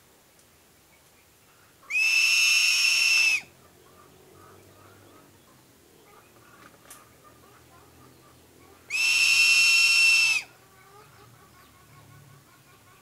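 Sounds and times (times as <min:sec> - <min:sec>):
eagle high whistle call: 0:01.9 - 0:03.5, 0:08.9 - 0:10.5.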